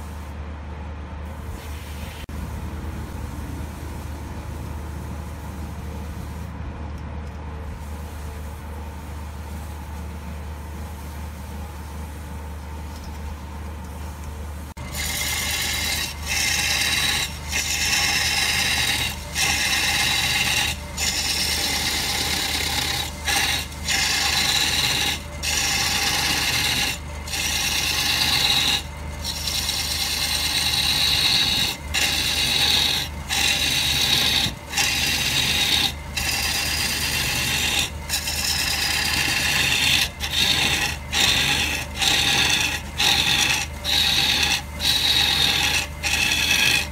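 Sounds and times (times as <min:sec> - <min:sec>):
lathe low hum: 0:00.0 - 0:46.9
lathe tool scraping wood: 0:14.7 - 0:46.9.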